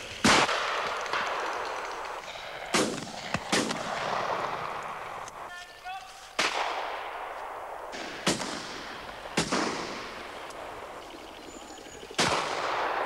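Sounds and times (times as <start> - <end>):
shotgun shots with echo: 0.2 - 5.1, 6.4 - 11.0, 12.2 - 13.0.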